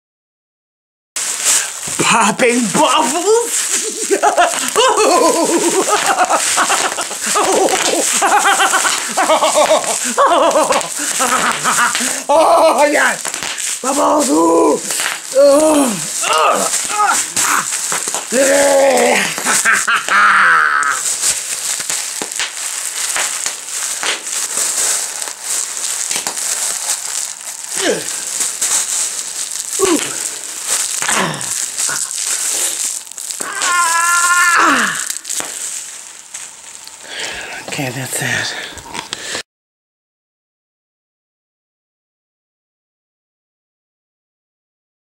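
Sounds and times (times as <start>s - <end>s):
bubble wrap crinkling: 1.2s - 39.2s
woman warbling cry: 14.0s - 17.8s, 18.4s - 21.1s, 33.4s - 35.1s.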